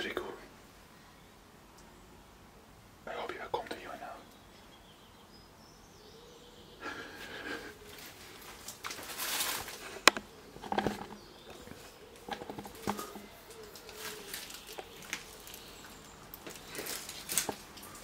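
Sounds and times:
rustling and handling noise: 7.6s - 18.0s.

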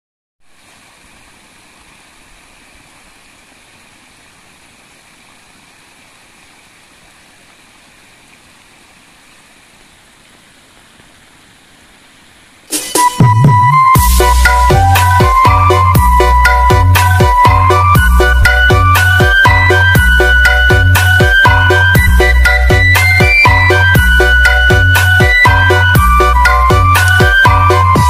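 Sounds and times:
water splashing and trickling: 0.4s - 13.0s, 14.0s - 28.0s.

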